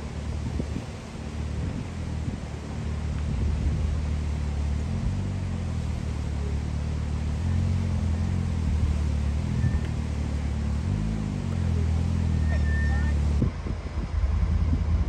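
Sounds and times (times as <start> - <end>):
engine running at low revs: 0.0 - 15.0.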